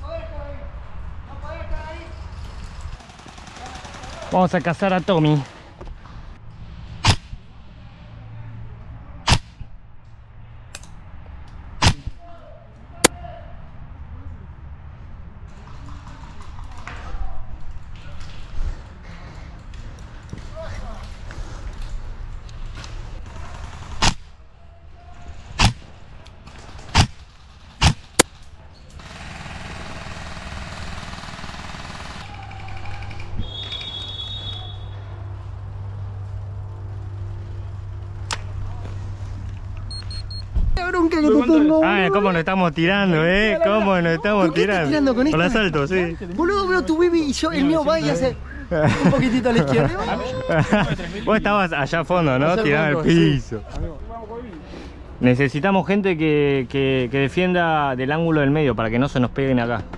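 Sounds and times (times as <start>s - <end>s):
airsoft rifle shots: 7.0s - 7.4s, 9.2s - 9.6s, 11.8s - 12.1s, 23.2s - 24.3s, 25.6s - 25.9s, 26.8s - 27.2s, 27.8s - 28.4s.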